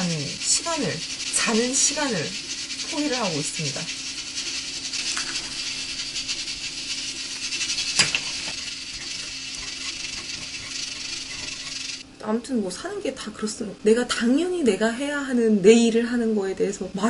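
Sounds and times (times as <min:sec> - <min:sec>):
crackling hiss of cooking: 0:00.0 - 0:12.0.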